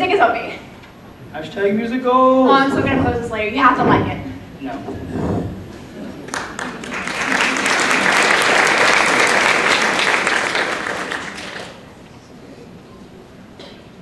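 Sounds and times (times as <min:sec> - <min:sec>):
audience clapping: 0:06.2 - 0:12.0.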